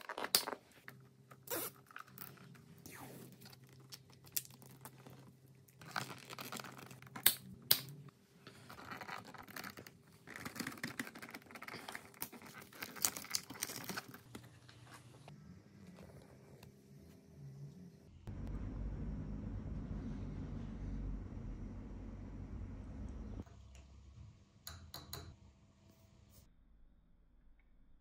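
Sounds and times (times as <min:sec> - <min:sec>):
rustling and crinkling of wiring: 0:00.0 - 0:07.2, 0:08.4 - 0:16.8
faint low hum: 0:14.2 - 0:24.7.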